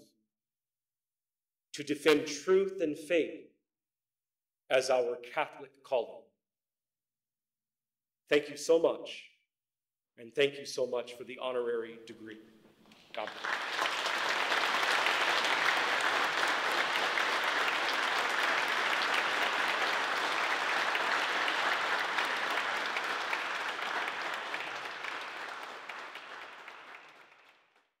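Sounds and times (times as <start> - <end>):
audience applauding: 13.0 - 27.9.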